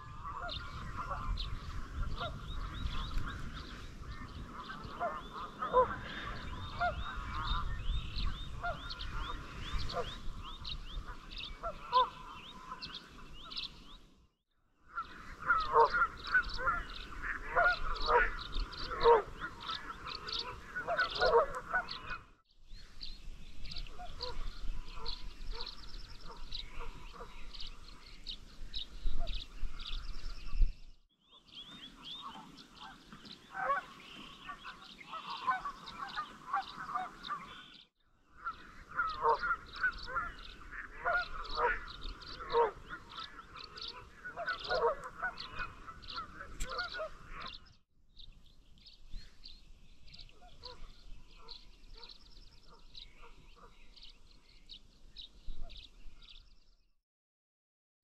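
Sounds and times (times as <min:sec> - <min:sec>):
waterfowl calling: 0:00.0 - 0:14.0, 0:14.9 - 0:22.4, 0:23.7 - 0:30.0, 0:31.6 - 0:47.6
small birds chirping: 0:00.0 - 0:14.1, 0:15.0 - 0:56.9.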